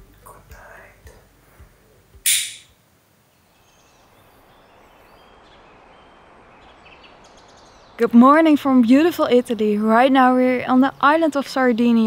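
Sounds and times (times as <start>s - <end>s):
faint outdoor ambience: 0.0s - 12.0s
loud hiss: 2.2s - 2.7s.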